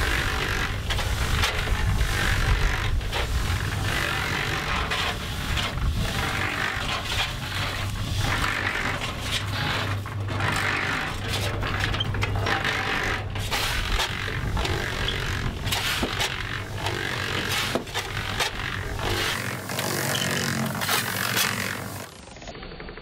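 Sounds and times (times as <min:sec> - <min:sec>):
cement mixer drum humming: 0:00.0 - 0:22.3
sand hissing through sieve: 0:14.8 - 0:22.2.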